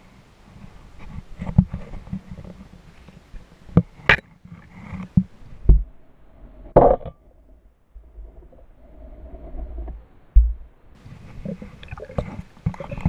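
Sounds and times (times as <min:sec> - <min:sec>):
muffled underwater knocks and clicks: 0:04.9 - 0:05.9, 0:09.8 - 0:10.7
low rumble: 0:05.6 - 0:11.0.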